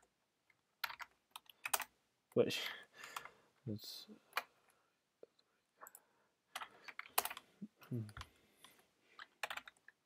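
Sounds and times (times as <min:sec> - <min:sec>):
typing on computer keyboard: 0:00.8 - 0:01.9, 0:05.8 - 0:07.5, 0:09.2 - 0:10.0.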